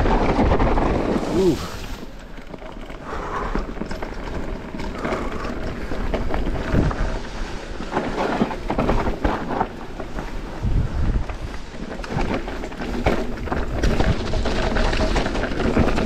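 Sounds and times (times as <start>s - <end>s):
bike rattling over rocks: 0.0s - 16.0s
wind buffeting microphone: 5.2s - 7.9s, 10.0s - 11.8s.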